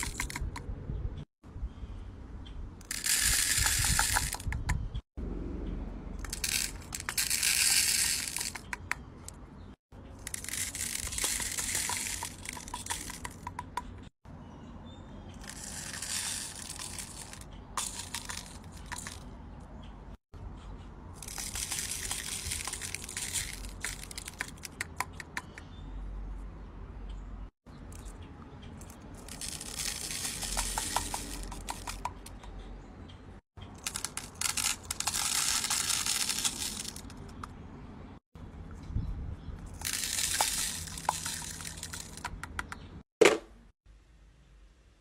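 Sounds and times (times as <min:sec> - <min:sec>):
beads rattling into plastic organizer: 0:02.9 - 0:04.6, 0:06.2 - 0:08.8, 0:10.2 - 0:13.6, 0:15.4 - 0:19.2, 0:21.2 - 0:24.7, 0:29.2 - 0:32.0, 0:33.8 - 0:37.2, 0:39.7 - 0:42.2.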